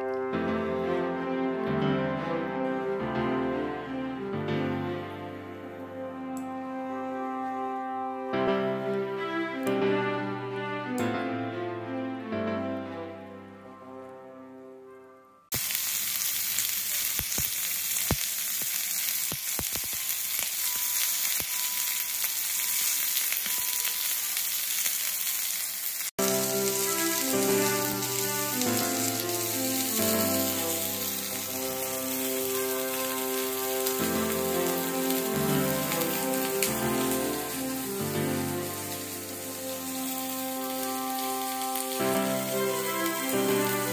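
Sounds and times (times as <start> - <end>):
music with long held notes: 0.0 - 15.5, 26.2 - 43.9
meat sizzling on griddle: 15.5 - 43.9.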